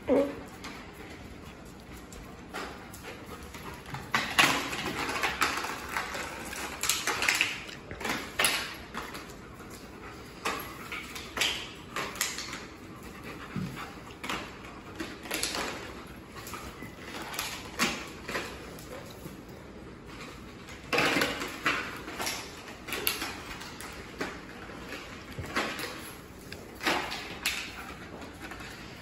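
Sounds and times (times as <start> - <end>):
dogs whining and playing: 0.0 - 29.0
paws scuffling on tile floor: 0.0 - 29.0.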